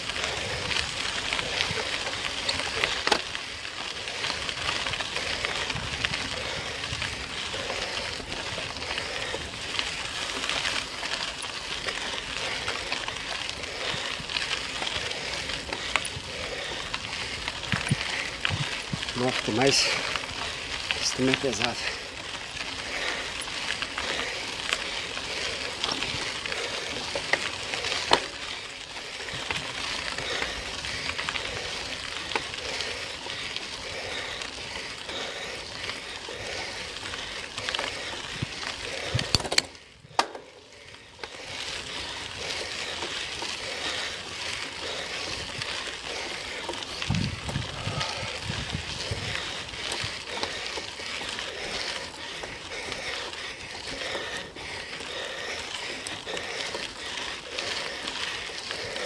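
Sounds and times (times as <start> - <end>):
bicycle tyres rolling on road: 0.0 - 59.0
wind on microphone: 47.0 - 49.5.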